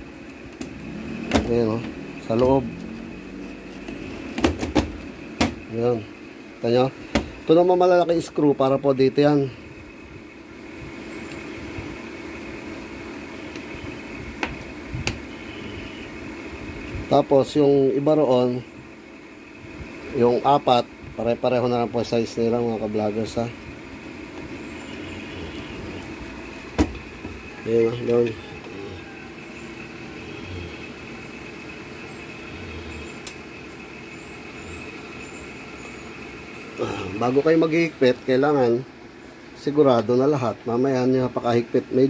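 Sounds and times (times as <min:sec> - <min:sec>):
steady background hum: 0:00.0 - 0:42.0
sharp click: 0:33.2 - 0:33.4.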